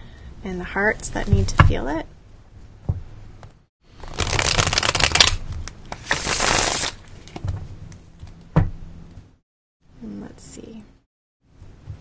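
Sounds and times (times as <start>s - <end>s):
cards riffle shuffling: 4.0s - 7.4s
cards rustling: 4.0s - 7.4s.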